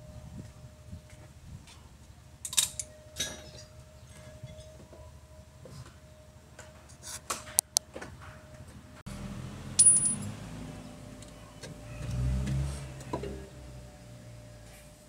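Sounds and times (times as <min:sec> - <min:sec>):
ringing clink of metal on metal: 0:09.8 - 0:10.3.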